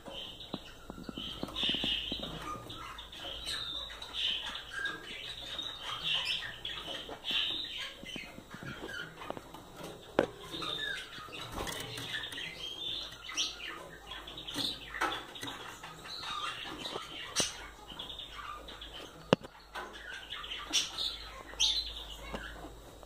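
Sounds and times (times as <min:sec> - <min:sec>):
finches chirping: 0:00.0 - 0:23.0
clicks and rustles in cage: 0:08.2 - 0:17.6.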